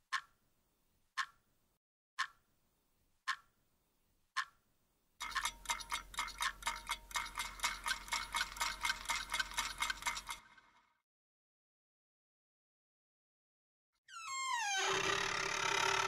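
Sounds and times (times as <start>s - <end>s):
clock ticking: 0.0s - 0.4s, 1.1s - 1.4s, 2.2s - 2.4s, 3.2s - 3.5s, 4.4s - 4.6s, 5.2s - 10.4s.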